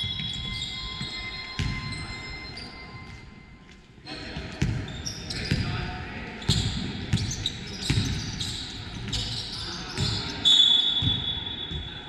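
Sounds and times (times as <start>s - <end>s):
sneaker squeaks: 0.0s - 3.4s, 4.1s - 12.0s
referee whistle blast: 10.4s - 11.8s.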